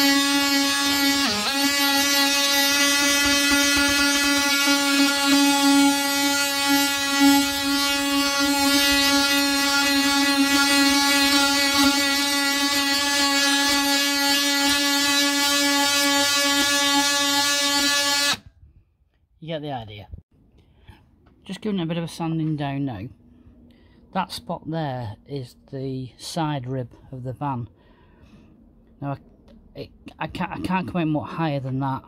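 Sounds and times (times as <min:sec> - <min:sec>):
sander on metal panel: 0:00.0 - 0:18.4.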